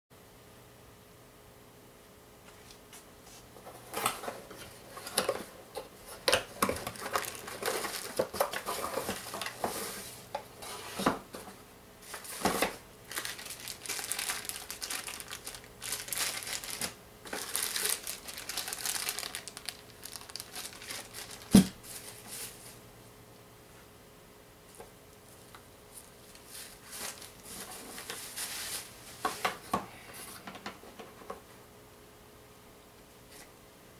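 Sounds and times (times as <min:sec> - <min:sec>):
plastic wrap crinkling: 0:06.1 - 0:10.1, 0:12.1 - 0:22.8, 0:24.8 - 0:29.0.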